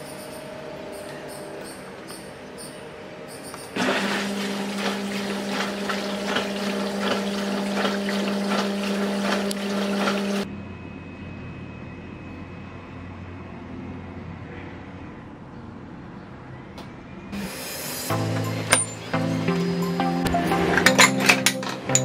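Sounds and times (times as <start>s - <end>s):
dishwasher motor hum: 3.4s - 10.5s, 17.4s - 22.0s
dishwasher water jets spraying: 3.8s - 10.5s, 17.4s - 22.0s.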